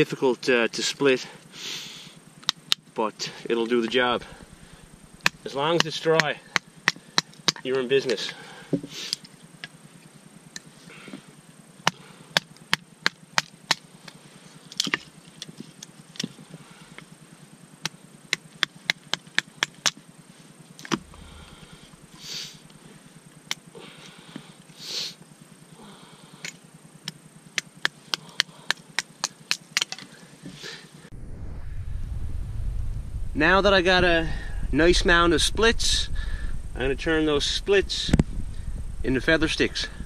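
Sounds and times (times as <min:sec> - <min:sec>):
hatchet splitting wood: 0:11.8 - 0:14.2, 0:26.4 - 0:30.1.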